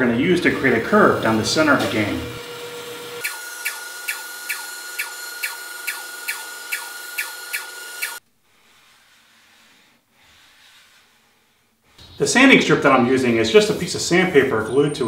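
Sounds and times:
bandsaw cutting with a whine: 0:00.4 - 0:09.9.

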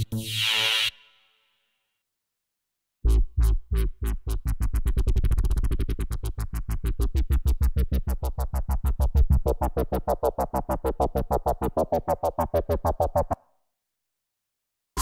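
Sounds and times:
wobbling synth bass: 0:03.0 - 0:13.4.

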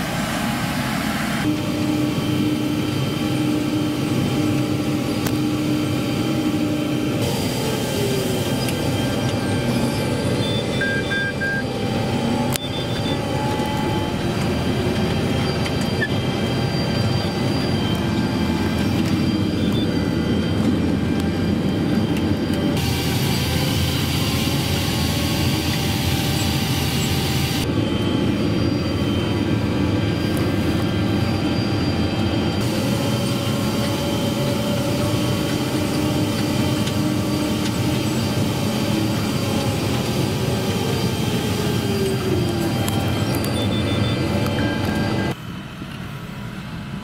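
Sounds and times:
tractor diesel engine under load: 0:00.0 - 0:47.0
hiss: 0:07.2 - 0:09.9.

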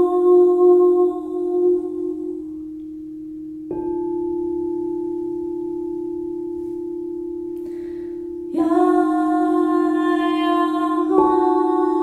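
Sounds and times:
singing bowl ringing: 0:02.4 - 0:12.0.

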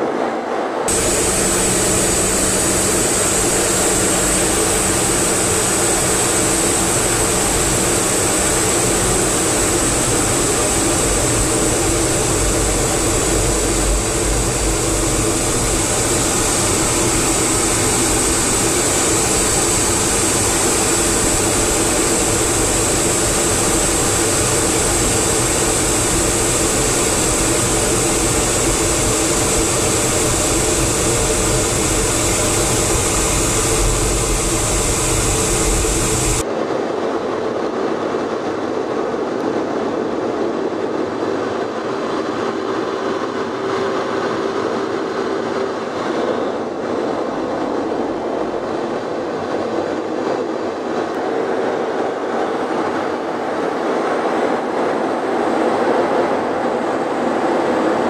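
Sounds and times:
jet engines and airflow rush: 0:00.0 - 0:58.0
thin high whine: 0:00.8 - 0:36.4.

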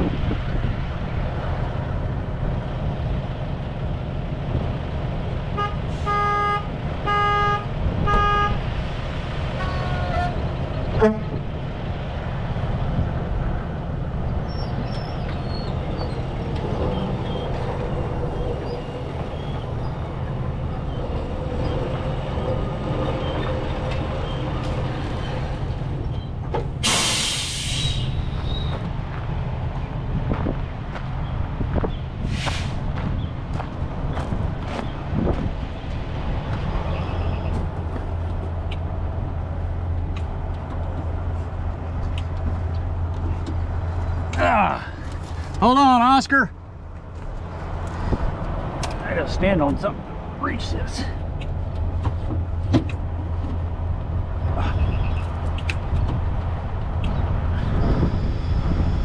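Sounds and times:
truck diesel engines running: 0:00.0 - 0:59.0
truck horn toots: 0:05.6 - 0:08.7, 0:09.6 - 0:11.5
air brake hiss: 0:26.8 - 0:28.2.

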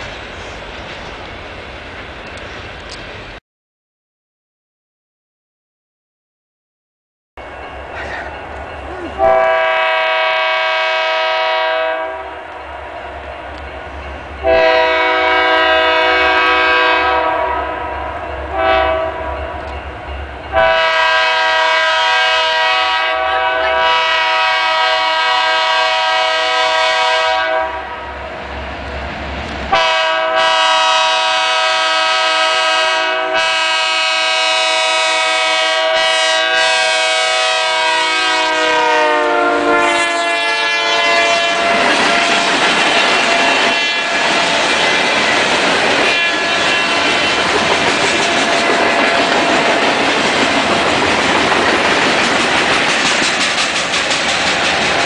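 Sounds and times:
locomotive air horn blasts: 0:09.2 - 0:12.5, 0:14.4 - 0:19.4, 0:20.5 - 0:28.1, 0:29.7 - 0:42.2, 0:43.1 - 0:44.5, 0:46.0 - 0:47.2.

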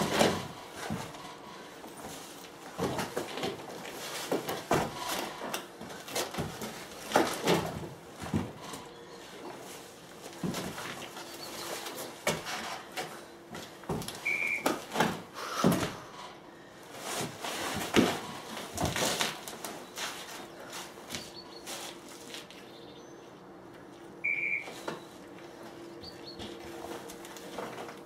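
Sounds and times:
short high beeps: 0:14.3 - 0:14.6, 0:24.2 - 0:24.8.

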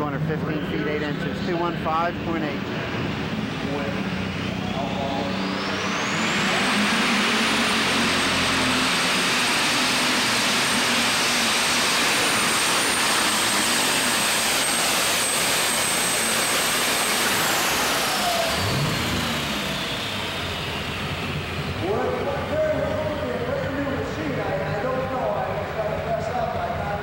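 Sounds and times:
high turbocharger whine: 0:00.0 - 0:27.0
tractor engine at full throttle: 0:00.0 - 0:27.0.

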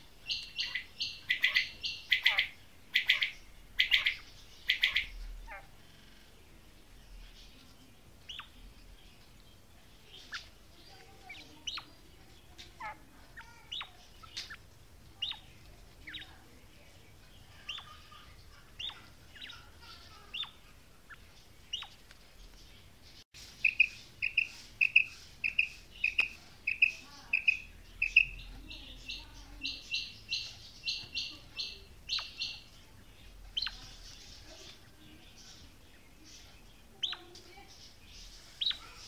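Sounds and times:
quail calling: 0:00.3 - 0:05.8, 0:23.6 - 0:32.7.

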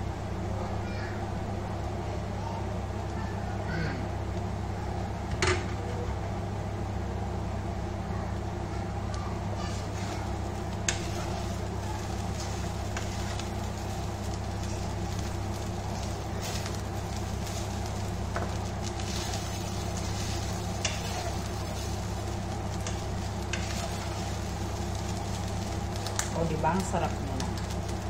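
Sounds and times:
steady low hum: 0:00.0 - 0:28.0
rice sizzling in oil: 0:07.2 - 0:28.0.

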